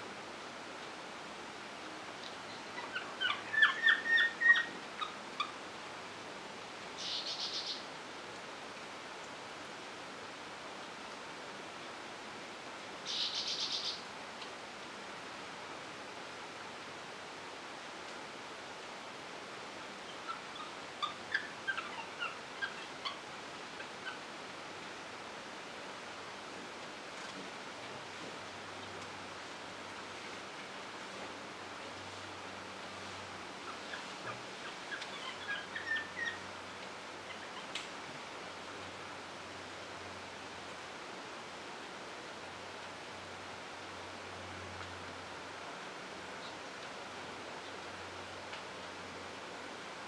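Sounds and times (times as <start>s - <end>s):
steady background hiss: 0.0s - 50.0s
high chirping animal calls: 2.5s - 5.6s, 7.0s - 7.9s, 13.1s - 14.0s, 20.1s - 23.2s, 23.8s - 24.2s, 33.6s - 36.5s, 37.2s - 37.8s.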